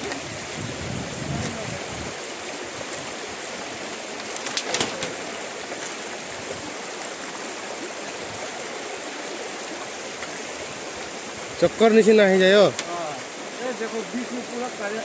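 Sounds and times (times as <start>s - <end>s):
river water rushing over stones: 0.0s - 15.0s
bamboo footbridge creaking: 4.1s - 6.0s
bamboo poles clicking: 4.2s - 6.0s, 12.7s - 12.9s.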